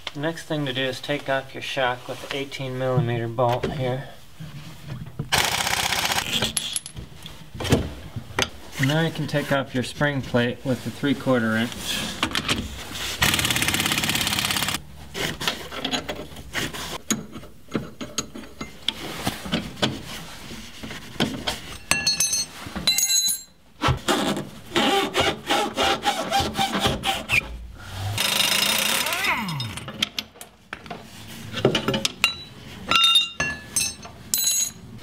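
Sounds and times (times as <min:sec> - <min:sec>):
metal clinks and scraping: 0:06.5 - 0:07.0, 0:21.6 - 0:23.6, 0:28.1 - 0:30.1, 0:32.1 - 0:35.0
impact wrench rattling: 0:13.2 - 0:14.8, 0:28.1 - 0:30.1.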